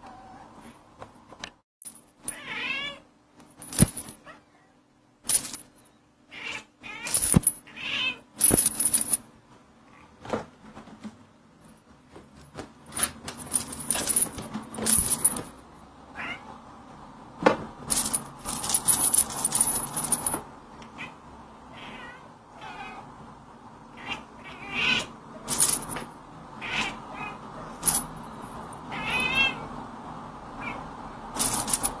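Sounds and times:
cats meowing: 0.0s - 0.6s, 2.3s - 3.0s, 6.3s - 8.3s, 20.9s - 23.2s, 23.9s - 25.2s, 26.6s - 27.8s, 28.9s - 29.7s, 30.6s - 30.9s.

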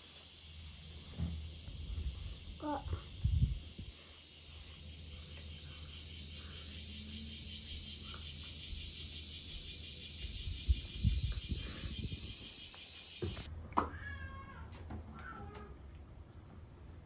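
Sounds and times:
insects chirring: 0.0s - 13.5s.

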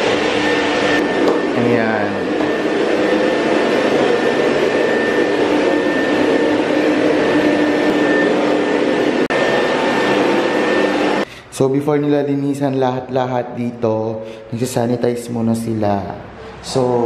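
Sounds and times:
vacuum cleaner running: 0.0s - 11.4s.

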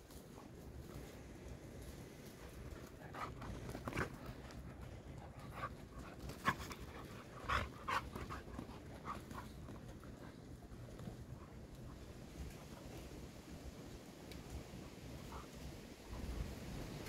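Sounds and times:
dogs panting: 0.1s - 13.2s.

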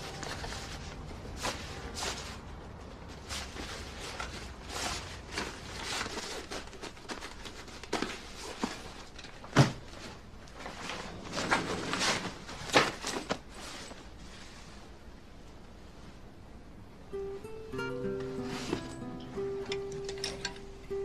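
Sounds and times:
clothes rustling: 0.0s - 16.4s, 18.2s - 20.8s.

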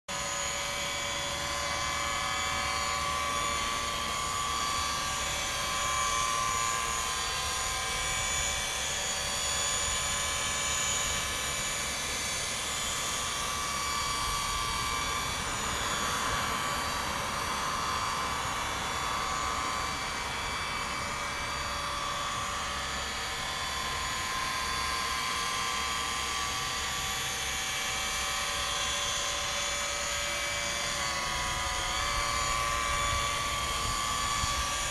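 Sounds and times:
small electric motor whining: 0.1s - 34.9s.

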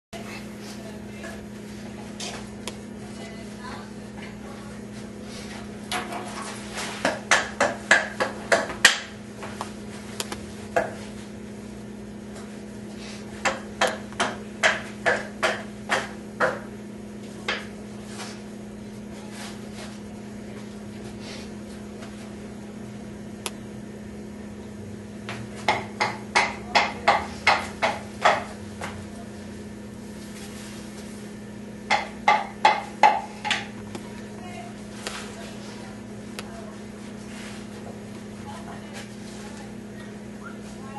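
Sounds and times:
steady low hum: 0.2s - 40.9s
sharp hammering knocks: 7.0s - 9.1s, 13.4s - 16.7s, 25.7s - 28.5s, 31.9s - 33.7s.

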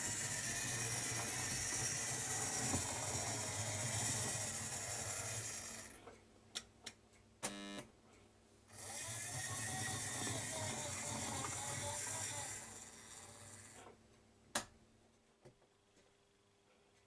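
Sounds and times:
model train motor whirring: 0.0s - 6.0s, 8.7s - 13.9s.

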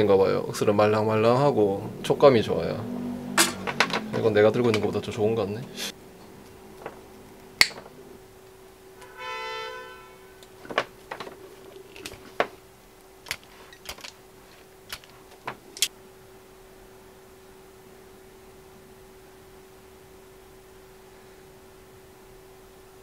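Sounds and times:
steady hum: 0.0s - 23.0s
loud snap: 3.4s - 4.9s, 7.6s - 7.9s
wire stripper clicks: 6.4s - 7.9s, 13.2s - 14.2s, 14.9s - 15.9s
side cutters snipping cord: 13.2s - 14.2s, 14.9s - 15.9s.

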